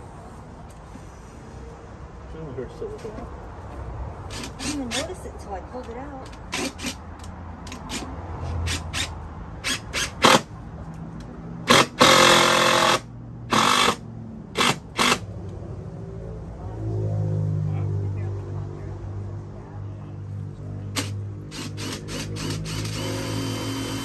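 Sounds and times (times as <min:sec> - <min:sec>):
cordless drill driving screws: 0:04.3 - 0:05.0, 0:08.7 - 0:10.5, 0:11.7 - 0:14.0, 0:14.6 - 0:15.2, 0:21.0 - 0:24.0.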